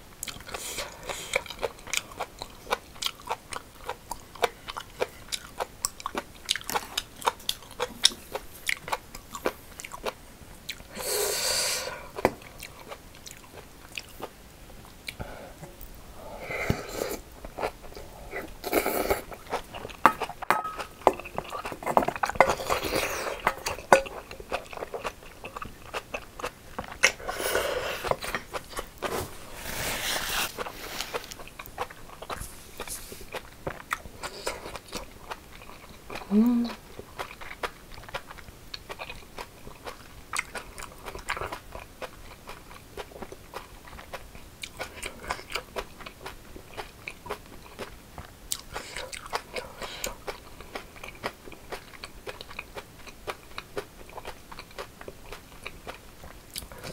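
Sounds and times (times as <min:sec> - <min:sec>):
person chewing crunchy food: 0:00.2 - 0:56.9
slurping broth from a spoon: 0:29.0 - 0:31.4.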